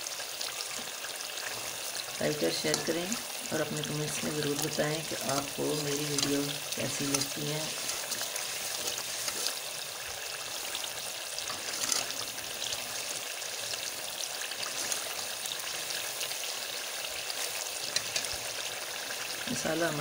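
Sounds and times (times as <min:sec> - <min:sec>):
food sizzling in oil: 0:00.0 - 0:20.0
metal spoon clicking and scraping: 0:11.5 - 0:12.2.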